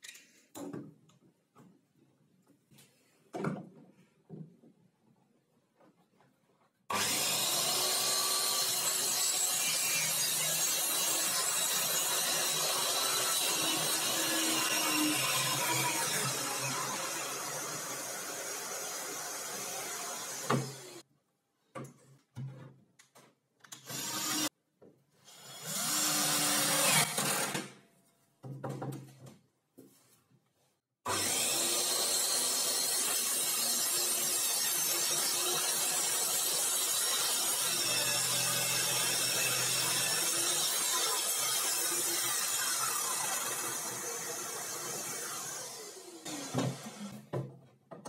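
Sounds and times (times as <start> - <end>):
circular saw whirring: 31.1 - 47.2.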